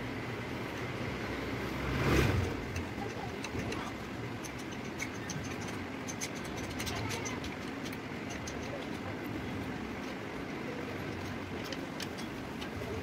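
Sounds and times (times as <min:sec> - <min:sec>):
workshop background hum: 0:00.0 - 0:13.0
metallic clicks of bolts tightening: 0:02.6 - 0:10.2, 0:11.0 - 0:13.0.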